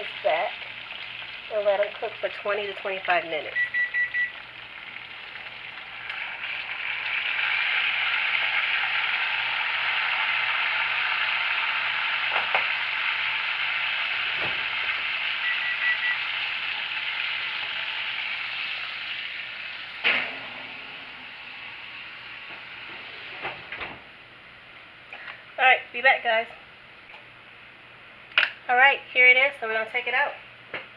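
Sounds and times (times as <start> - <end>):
chicken sizzling in hot oil: 0.0 - 22.9
high beeping: 3.6 - 4.3, 15.4 - 16.2.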